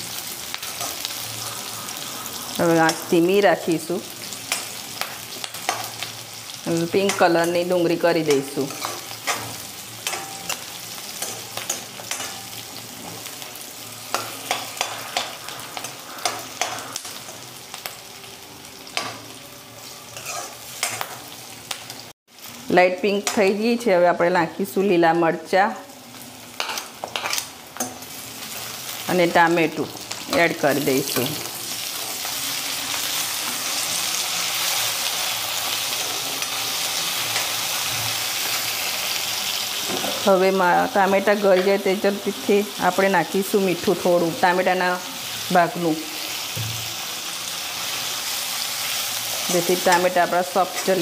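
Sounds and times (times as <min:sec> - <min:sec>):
onions sizzling in oil: 0:00.0 - 0:51.0
steel spatula scraping pan: 0:20.1 - 0:21.2.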